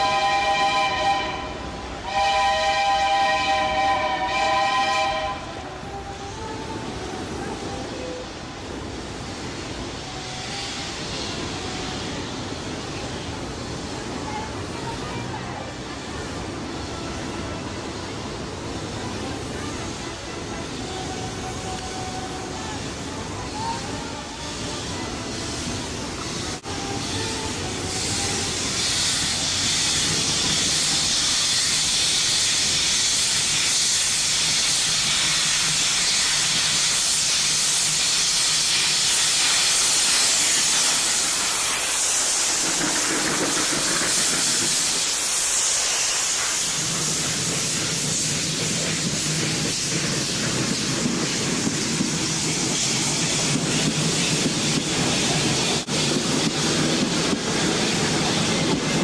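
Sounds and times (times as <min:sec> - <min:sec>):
steam locomotive hissing steam: 0:00.0 - 0:59.0
train wheels clacking over rail joints: 0:27.8 - 0:59.0.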